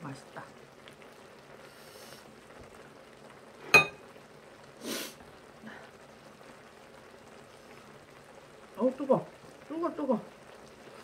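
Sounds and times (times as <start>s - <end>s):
short hiss: 4.8s - 5.2s.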